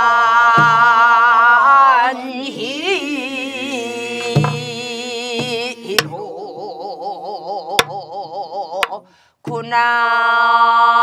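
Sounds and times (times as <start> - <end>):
person singing folk song: 0.0 - 11.0
barrel drum strokes: 4.0 - 6.2.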